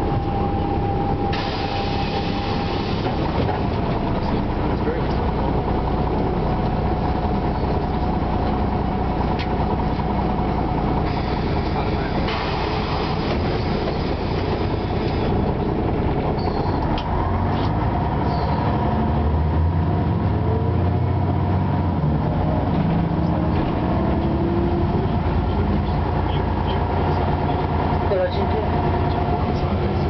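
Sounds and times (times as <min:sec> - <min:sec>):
bus diesel engine running: 0:00.0 - 0:30.0
road and body noise: 0:00.0 - 0:30.0.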